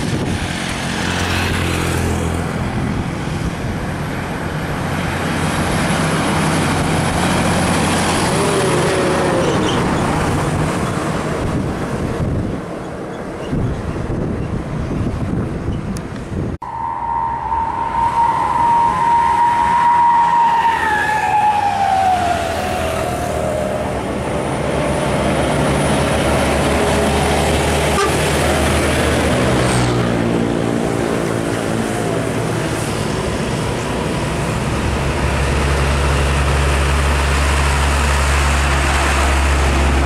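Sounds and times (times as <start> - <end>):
truck engine droning: 0.0 - 15.8, 16.4 - 40.0
heavy trucks driving past: 0.0 - 40.0
siren-like horn tone sliding down: 16.6 - 24.1.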